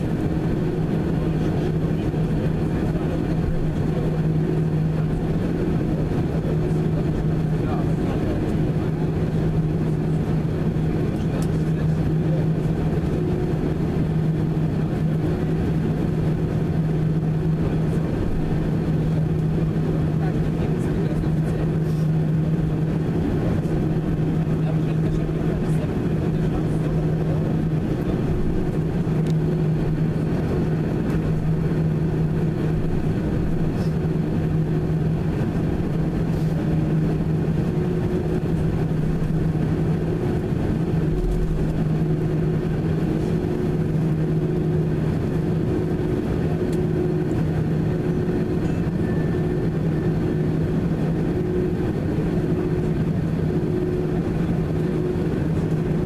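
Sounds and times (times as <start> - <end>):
jet engines humming at idle: 0.0 - 56.0
low rumble: 16.4 - 56.0.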